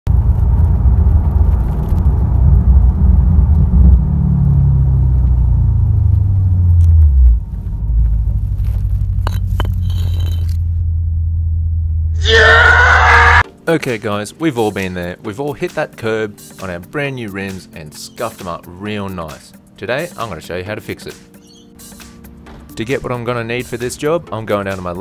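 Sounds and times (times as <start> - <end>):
road rumble: 0.1 - 13.4
car engine from inside cabin: 0.2 - 9.2, 10.6 - 12.2.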